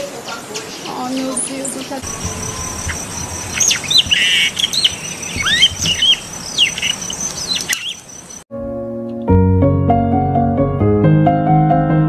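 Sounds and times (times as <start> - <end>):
songbirds chirping: 0.0 - 8.5
high-pitched insect trill: 2.0 - 8.4.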